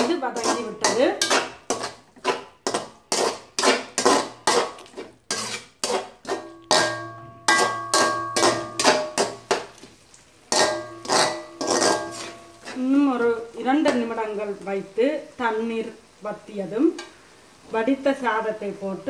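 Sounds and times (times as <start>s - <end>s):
metal spatula scraping pot: 0.0s - 9.9s, 10.5s - 14.6s
pot ringing: 6.5s - 9.6s, 10.5s - 12.8s.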